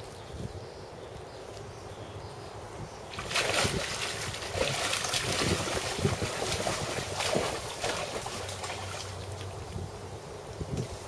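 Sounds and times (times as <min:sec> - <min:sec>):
fish splashing at water surface: 0:03.1 - 0:09.4.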